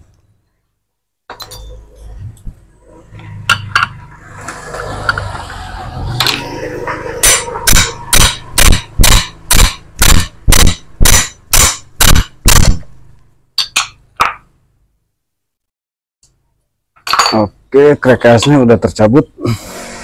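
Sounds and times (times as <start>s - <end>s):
hammer striking metal: 6.2s - 12.9s.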